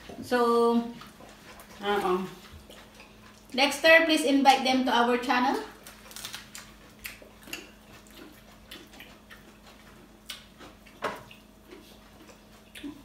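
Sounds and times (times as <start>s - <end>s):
wet mouth eating sounds: 0.9s - 3.6s, 5.7s - 13.0s.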